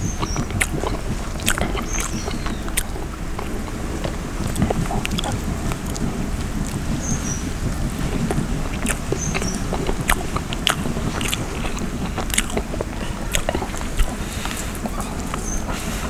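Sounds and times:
chewing and wet smacking: 0.0 - 16.0.

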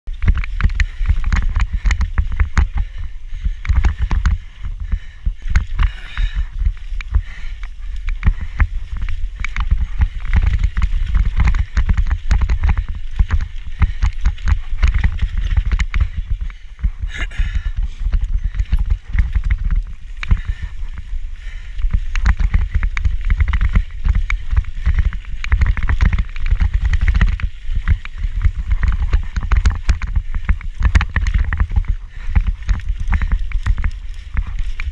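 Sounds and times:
low rumble of bike ride: 0.0 - 34.9
camera rattling in its mount: 10.4 - 12.6, 14.2 - 16.4, 17.5 - 19.8, 25.8 - 27.4, 28.3 - 30.1.

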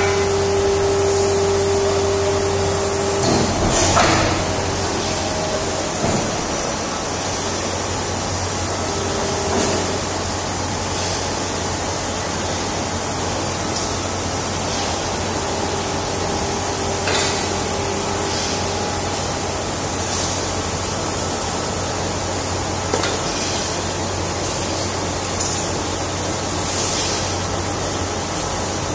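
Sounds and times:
die casting machine hum: 0.0 - 28.9
machine knocks: 1.9 - 7.8.

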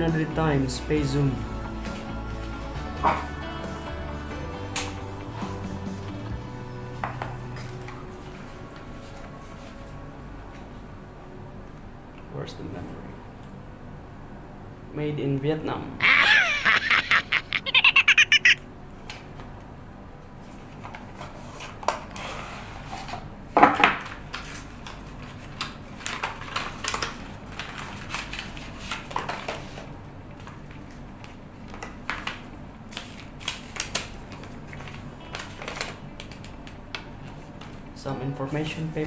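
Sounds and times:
paper leaflets rustling: 24.3 - 37.8.

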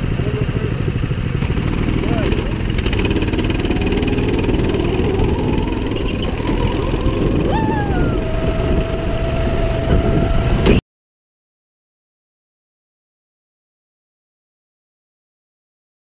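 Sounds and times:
go-kart engine whining: 0.0 - 10.8.

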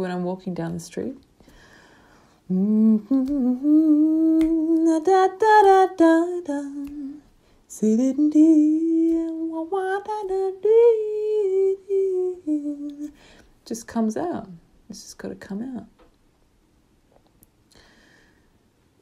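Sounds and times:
woman humming a melody: 2.5 - 13.1.

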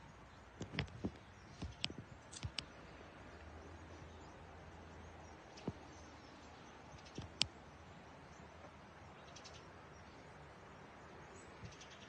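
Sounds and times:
sharp clicks and taps: 0.6 - 2.7.

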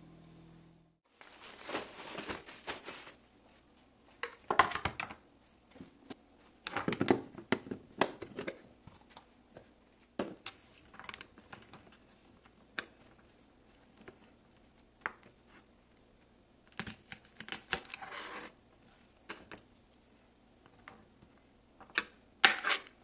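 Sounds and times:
plastic rustling: 1.1 - 3.6.

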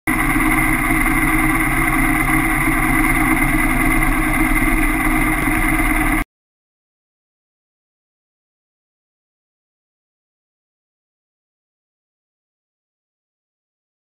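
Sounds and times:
motorcycle engine idling: 0.1 - 6.2.

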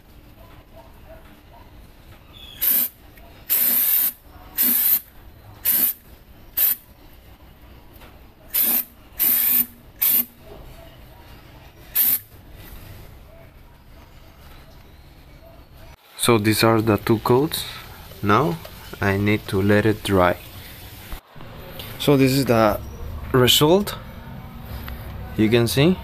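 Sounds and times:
aerosol can spraying in bursts: 2.6 - 6.0, 6.6 - 6.8, 8.5 - 10.3, 11.9 - 12.3.

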